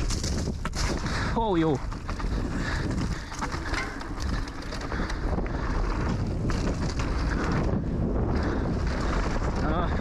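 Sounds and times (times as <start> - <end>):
bike clicks and rattles: 0.0 - 10.0
tyres rumbling on dirt: 0.0 - 10.0
wind buffeting microphone: 0.0 - 10.0.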